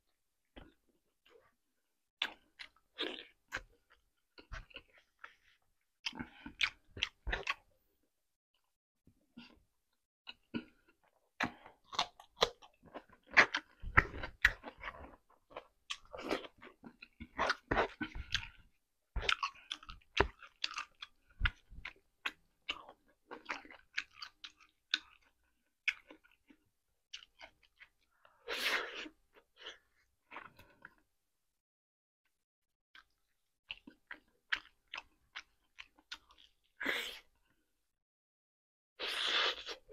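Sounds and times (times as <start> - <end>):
person chewing food: 2.2 - 7.7, 10.3 - 31.0, 33.0 - 37.6.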